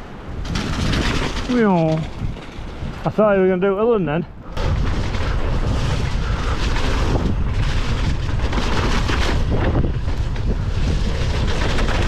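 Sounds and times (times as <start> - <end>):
wind buffeting microphone: 0.0 - 12.0
bike knocks and rattles: 0.3 - 3.0, 4.6 - 12.0
bike tyres rumbling on mud: 0.4 - 3.2, 4.6 - 12.0.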